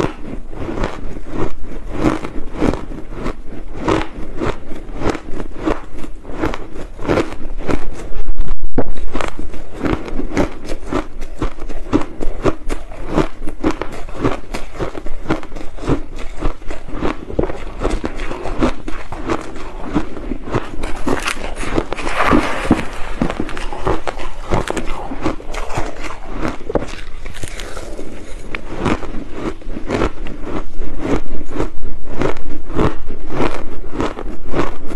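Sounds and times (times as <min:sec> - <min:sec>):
ice being chewed: 0:00.0 - 0:34.9.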